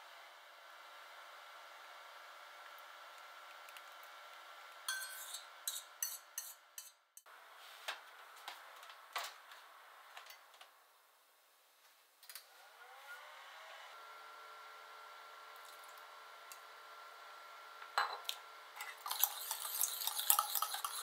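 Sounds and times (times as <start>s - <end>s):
utensil clinking on glass dish: 4.9s - 7.0s, 18.8s - 21.0s.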